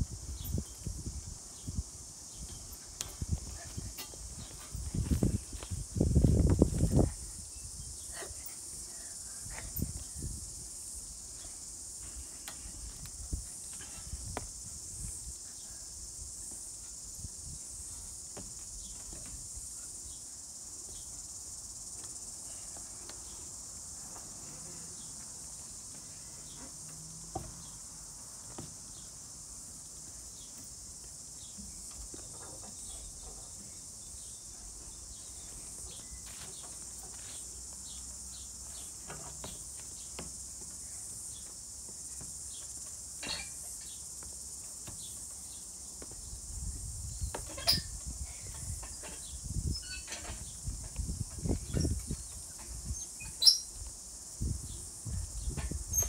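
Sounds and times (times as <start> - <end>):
wind rumble on microphone: 0.0 - 8.0, 46.4 - 53.3, 54.4 - 56.0
insects chirring: 0.0 - 56.0.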